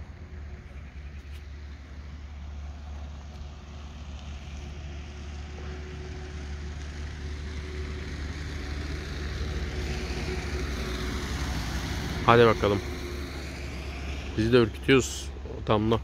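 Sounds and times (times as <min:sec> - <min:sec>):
engine running: 0:00.0 - 0:16.0.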